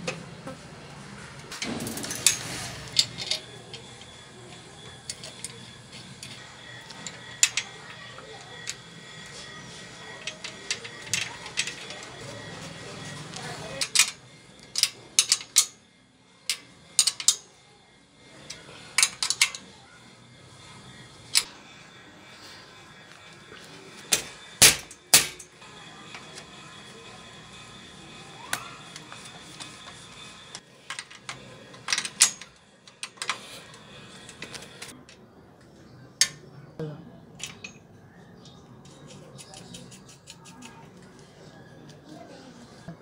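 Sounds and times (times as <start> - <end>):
wrench clinking on bicycle frame: 13.7 - 15.8, 16.4 - 17.5.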